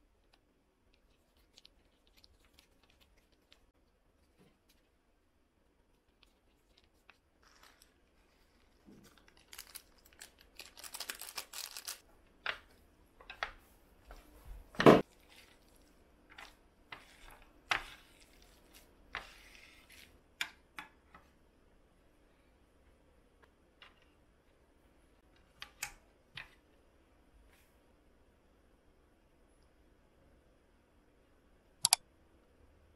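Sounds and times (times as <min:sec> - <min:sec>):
sticky rustling of noodles: 0:05.9 - 0:12.0, 0:15.0 - 0:20.3.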